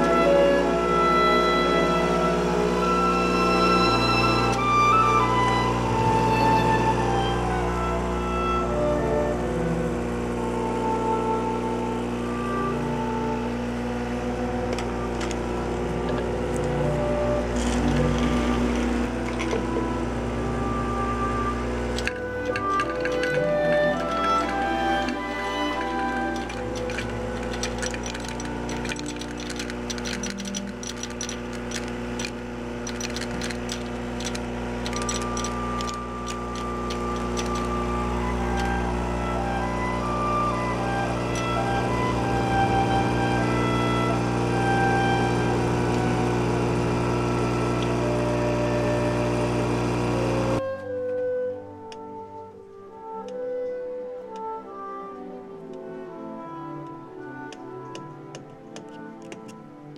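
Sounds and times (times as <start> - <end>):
machine hum: 0.0 - 50.6
ambient instrumental music: 0.0 - 59.9
capsules clicking into glass jar: 22.0 - 38.8.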